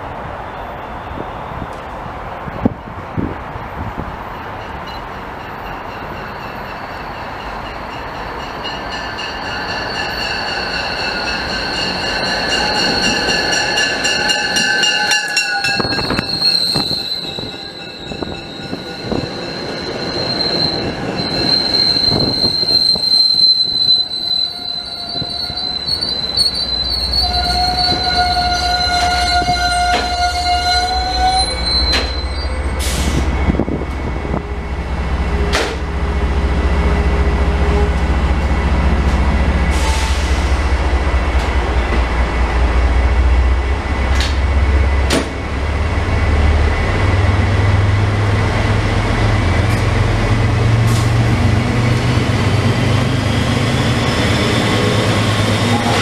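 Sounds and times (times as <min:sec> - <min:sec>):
train braking to a stop: 0:04.2 - 0:42.4, 0:43.3 - 0:56.0
wheels and brakes squealing: 0:05.7 - 0:34.8, 0:52.6 - 0:56.0.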